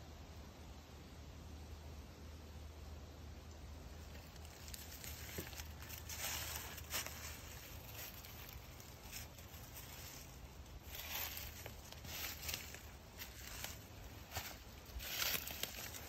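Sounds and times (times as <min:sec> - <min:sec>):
leaves crackling: 0:03.8 - 0:16.0
footsteps in dry leaves: 0:04.0 - 0:16.0.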